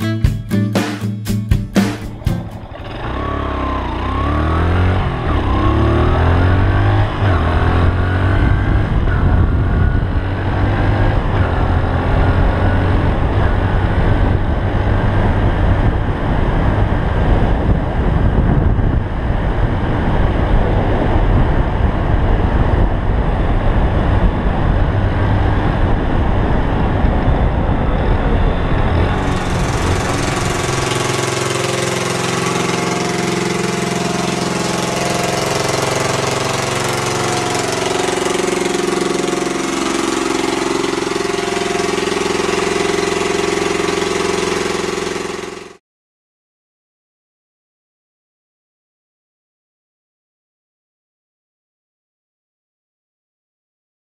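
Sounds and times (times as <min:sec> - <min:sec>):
motorcycle engine revving: 0:01.8 - 0:45.8
wind rumbling on microphone: 0:06.6 - 0:30.5.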